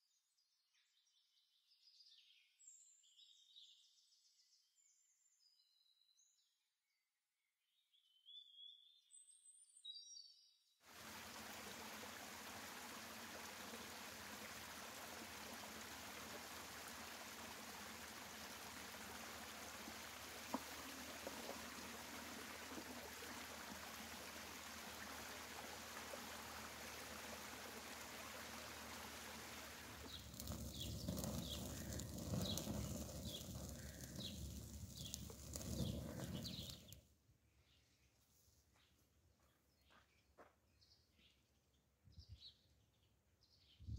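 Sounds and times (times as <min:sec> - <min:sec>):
bird chirps: 0:07.9 - 0:10.6
stream running over rocks: 0:10.9 - 0:37.0
wood fire crackling: 0:10.9 - 0:37.0.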